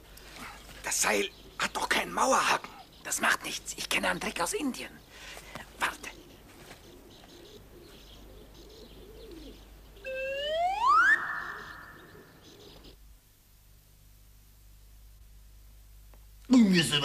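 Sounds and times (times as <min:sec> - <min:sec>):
faint chirps: 0:04.8 - 0:13.0.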